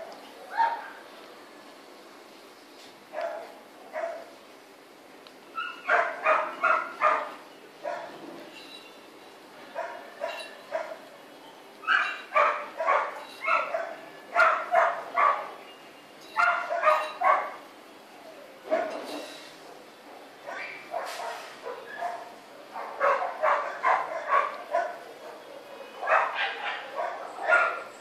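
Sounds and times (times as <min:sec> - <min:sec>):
dog barking: 0:00.5 - 0:01.0, 0:03.2 - 0:04.3, 0:05.6 - 0:08.1, 0:09.8 - 0:11.0, 0:11.9 - 0:15.6, 0:16.4 - 0:17.6, 0:18.7 - 0:19.1, 0:20.5 - 0:27.9.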